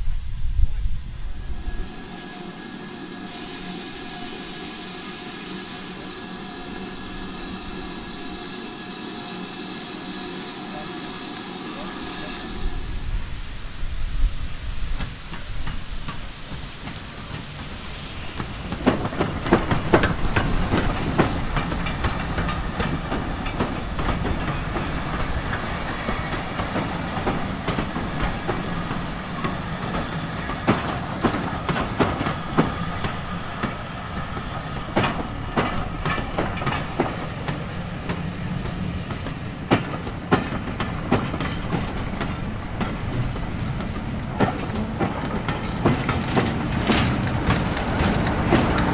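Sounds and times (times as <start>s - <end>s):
steady train rumble: 0.0s - 48.9s
train wheels clacking over joints: 14.9s - 48.9s.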